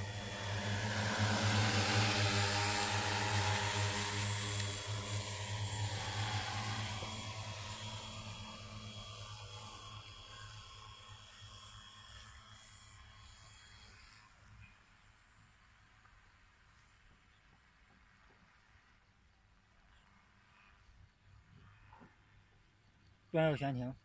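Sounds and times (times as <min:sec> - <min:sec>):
drone rotors humming: 0:00.0 - 0:15.8.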